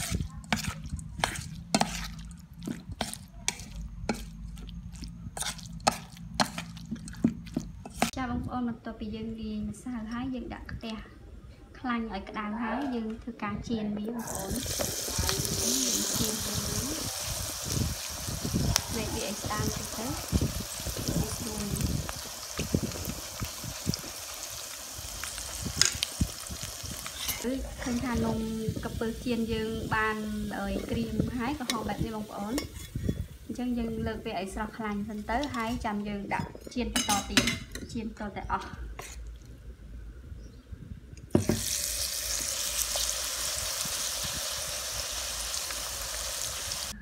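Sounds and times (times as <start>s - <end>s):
spoon scraping metal bowl: 0.0s - 4.7s, 5.4s - 8.2s, 32.6s - 33.2s, 39.0s - 39.3s
deep-frying sizzle: 14.2s - 36.1s, 41.3s - 47.0s.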